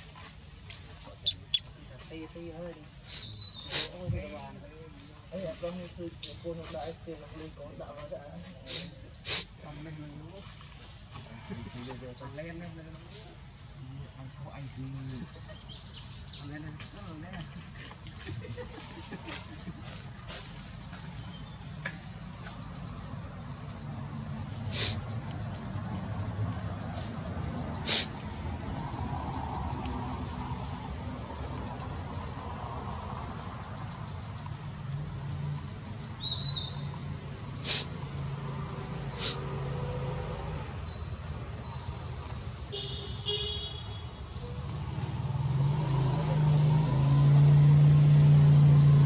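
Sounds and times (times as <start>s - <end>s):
short chirps: 1.2s - 1.6s
high-pitched insect buzz: 41.8s - 49.0s.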